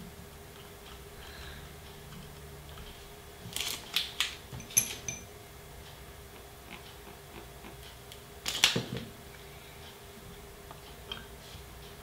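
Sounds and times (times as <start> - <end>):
small steel parts clinking: 3.6 - 5.3.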